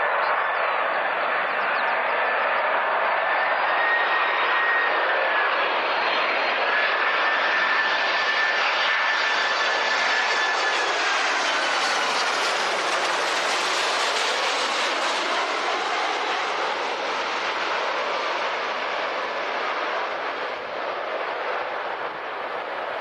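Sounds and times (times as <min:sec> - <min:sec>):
jet engine roar passing overhead: 0:00.0 - 0:23.0.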